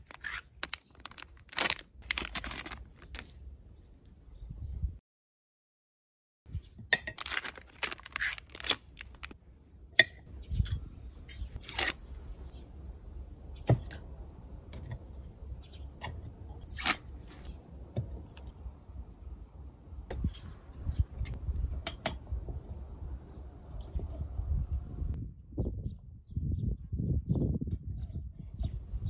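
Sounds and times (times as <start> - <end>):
rustling: 0.0 - 3.4, 7.2 - 9.4
low steady rumble: 12.0 - 29.0.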